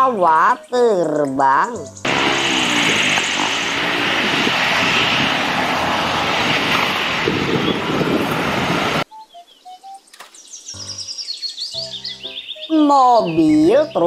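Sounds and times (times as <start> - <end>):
jet airliner engines: 2.1 - 9.0.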